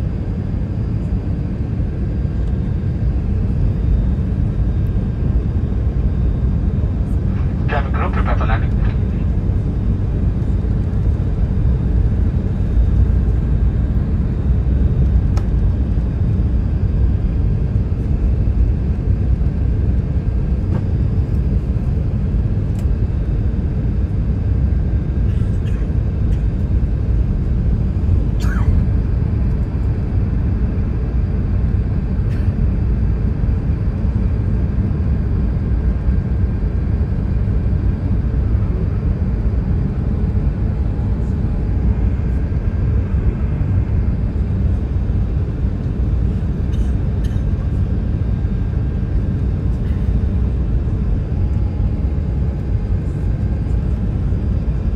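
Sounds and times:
airplane cabin rumble: 0:00.0 - 0:54.9.

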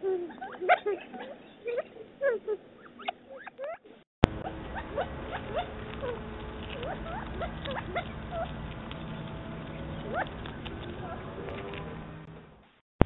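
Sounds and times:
quail calling: 0:02.8 - 0:11.8.

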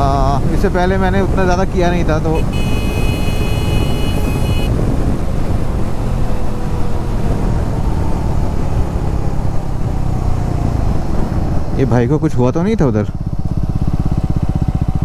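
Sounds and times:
wind noise: 0:00.0 - 0:11.8
high steady tone: 0:02.3 - 0:04.7
motorcycle engine running: 0:02.3 - 0:05.8, 0:12.9 - 0:15.0.

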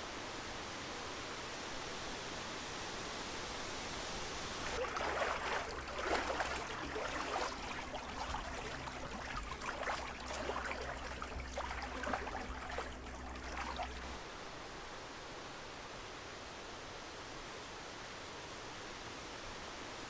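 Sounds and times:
small waves lapping: 0:04.2 - 0:14.4
steady low rumble: 0:04.6 - 0:14.2.

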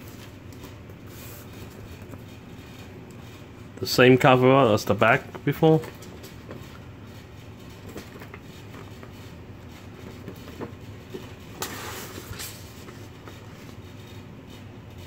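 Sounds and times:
steady low hum: 0:00.0 - 0:15.0
paper rustling and crackling: 0:04.2 - 0:14.2.

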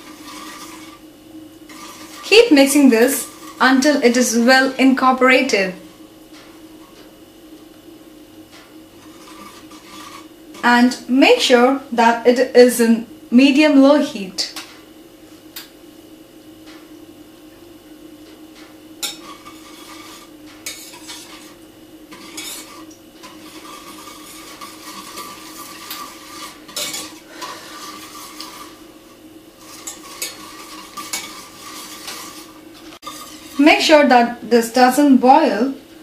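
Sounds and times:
whisk scraping a metal pan: 0:00.0 - 0:04.8, 0:09.0 - 0:10.8, 0:19.0 - 0:34.2
steady low hum: 0:00.0 - 0:36.0.

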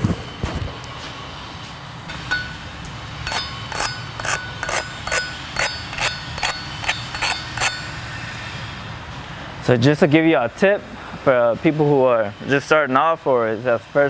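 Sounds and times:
hammer tapping on metal: 0:02.1 - 0:02.7, 0:03.3 - 0:08.1.

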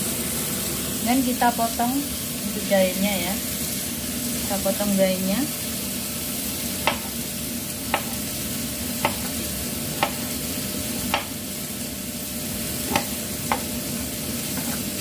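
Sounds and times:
knife knocking on cutting board: 0:06.8 - 0:07.1, 0:09.0 - 0:09.3, 0:10.0 - 0:10.3, 0:11.1 - 0:11.3.

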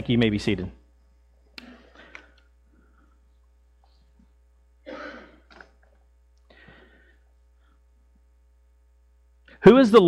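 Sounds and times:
low electrical hum: 0:00.0 - 0:10.0
rustling and shuffling: 0:02.0 - 0:04.5.

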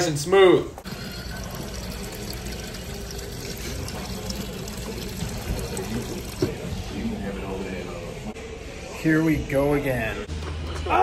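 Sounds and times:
water filling glass bottle: 0:00.8 - 0:06.9.

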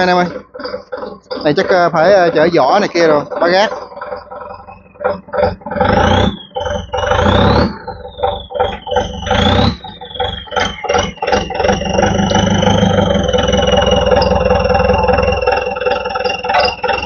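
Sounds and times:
metal knocks and clanks: 0:00.0 - 0:09.5
forklift engine running: 0:00.0 - 0:17.0
high hydraulic whine: 0:00.0 - 0:17.0.

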